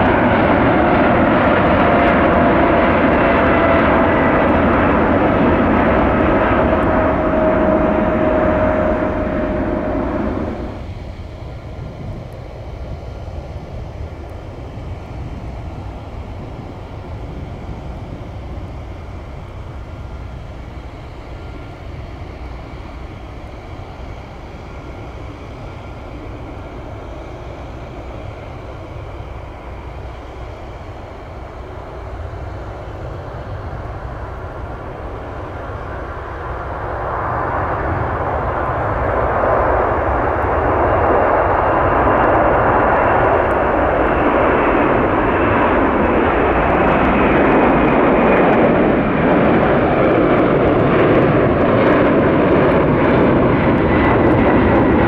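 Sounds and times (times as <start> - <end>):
low rumble: 0.0 - 26.9
airplane engine noise: 0.0 - 55.0.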